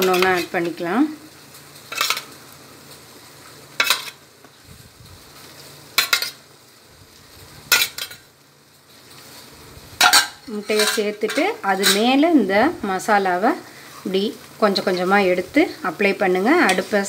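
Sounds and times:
faint sizzle of simmering sauce: 0:00.0 - 0:17.0.

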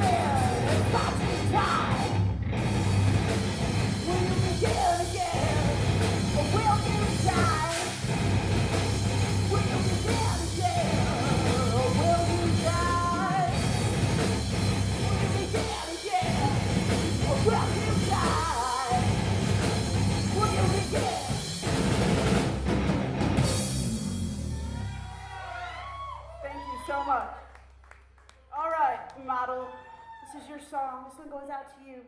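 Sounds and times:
woman singing with shouts: 0:00.0 - 0:02.1, 0:04.1 - 0:05.8, 0:09.5 - 0:13.6, 0:24.7 - 0:27.4
electric guitars: 0:00.0 - 0:25.0
drum kit: 0:00.0 - 0:25.4.

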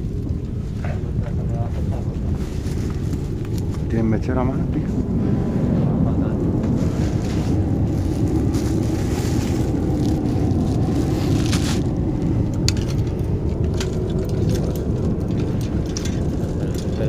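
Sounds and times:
wind buffeting microphone: 0:00.0 - 0:17.0
crunches and clicks on debris: 0:11.4 - 0:17.0.

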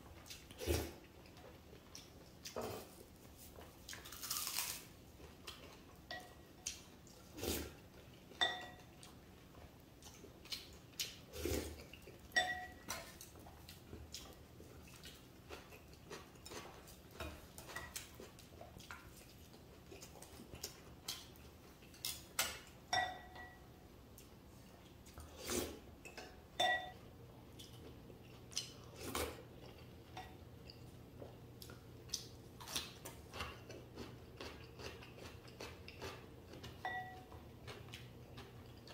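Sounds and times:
soft chewing: 0:00.1 - 0:22.8, 0:23.4 - 0:26.4, 0:27.0 - 0:38.9
tableware clinking: 0:08.4 - 0:08.9, 0:12.4 - 0:13.1, 0:22.4 - 0:23.6, 0:26.1 - 0:27.0.

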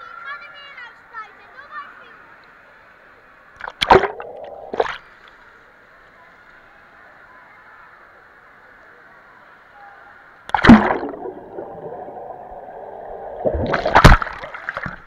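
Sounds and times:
underwater churning and bubbling: 0:03.6 - 0:05.1, 0:10.5 - 0:15.0
loud splash into water: 0:03.7 - 0:05.0, 0:10.5 - 0:12.0, 0:13.4 - 0:15.0.

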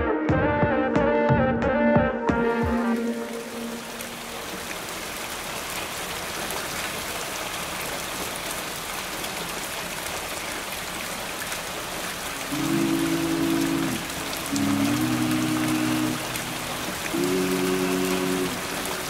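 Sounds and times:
music with sustained tones: 0:00.0 - 0:04.4
rain falling on water: 0:02.7 - 0:19.0.

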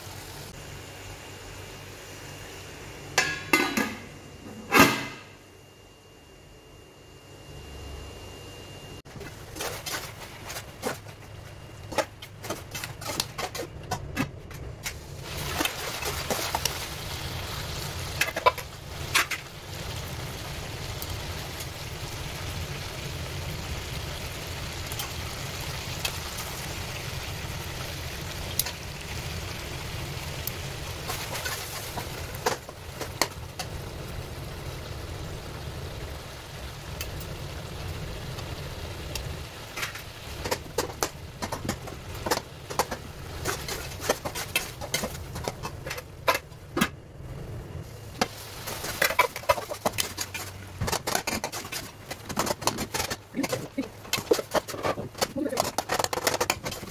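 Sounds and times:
metal lid clanking: 0:03.2 - 0:05.4
meat sizzling in a pan: 0:15.0 - 0:45.4
tongs clinking and scraping pan: 0:48.7 - 0:56.9.

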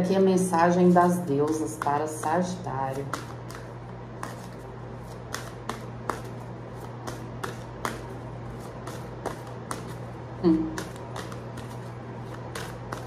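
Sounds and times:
steady low hum: 0:00.0 - 0:13.0
cards being shuffled: 0:02.5 - 0:10.1, 0:10.8 - 0:13.0.

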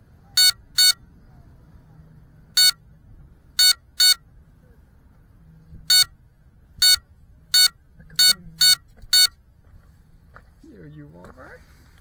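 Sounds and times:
short sharp buzzer beeps: 0:00.4 - 0:01.0, 0:02.6 - 0:02.8, 0:03.6 - 0:04.2, 0:05.9 - 0:06.1, 0:06.8 - 0:09.4.

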